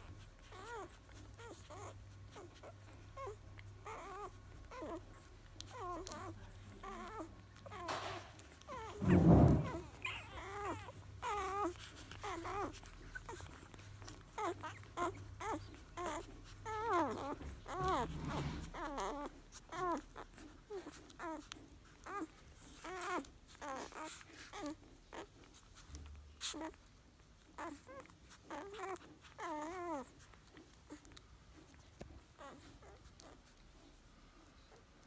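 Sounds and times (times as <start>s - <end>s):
puppies squeaking and whimpering: 0.0s - 35.0s
loud low thump: 9.0s - 10.0s.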